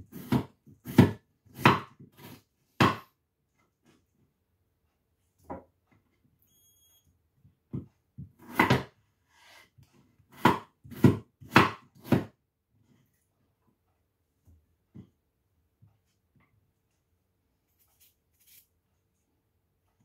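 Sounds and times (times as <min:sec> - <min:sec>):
knife chopping on wooden board: 0:00.1 - 0:03.2, 0:07.8 - 0:09.0, 0:10.3 - 0:12.4.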